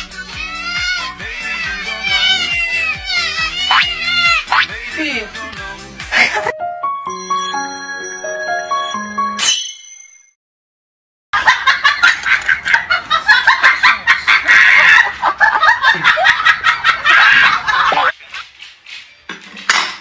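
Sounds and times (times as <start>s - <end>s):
loud hearty laughter: 6.1s - 6.5s, 11.4s - 18.2s.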